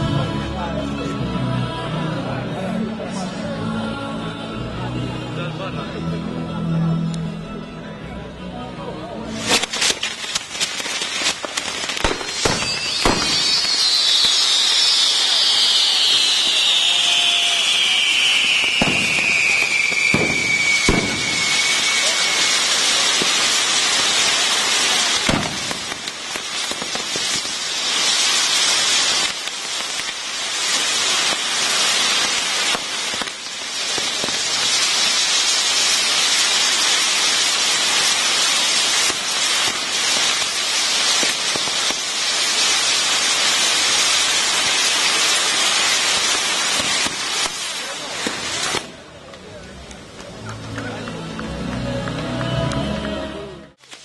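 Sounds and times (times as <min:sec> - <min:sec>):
hiss and crackle of sparks: 0:09.3 - 0:50.4, 0:53.8 - 0:54.0
falling firework whistle: 0:09.4 - 0:49.0
sharp firework bangs: 0:09.4 - 0:49.0.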